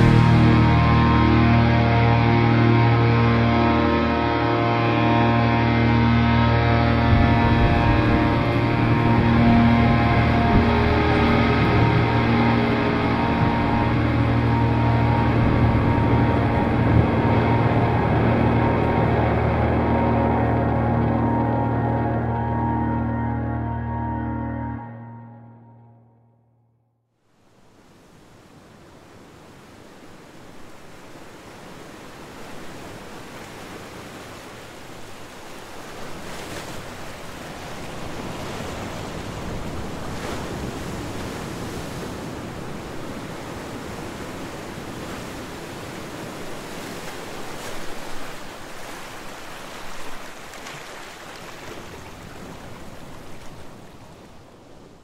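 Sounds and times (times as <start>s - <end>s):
steady rushing noise: 0.0s - 23.2s.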